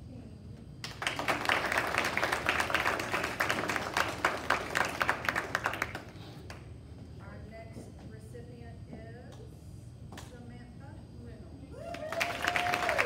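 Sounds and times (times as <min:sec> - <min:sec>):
audience applauding: 0:00.8 - 0:06.6, 0:11.9 - 0:13.0.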